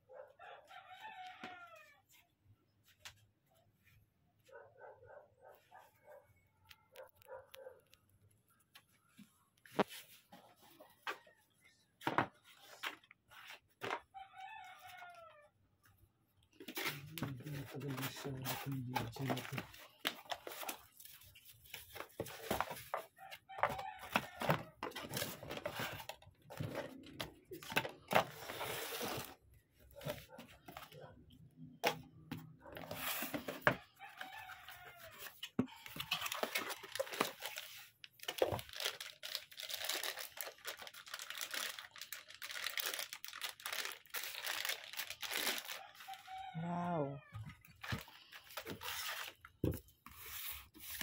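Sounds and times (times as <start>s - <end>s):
cardboard and plastic packaging rustling: 16.5s - 31.2s, 31.8s - 46.5s, 47.4s - 51.0s
plastic bag crinkling: 36.0s - 46.2s.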